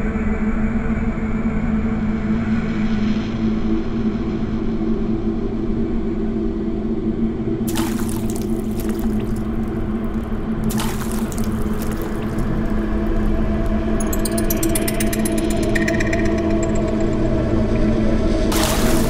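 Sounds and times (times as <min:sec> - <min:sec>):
pool water sloshing and splashing: 0:07.7 - 0:13.2, 0:18.5 - 0:19.0.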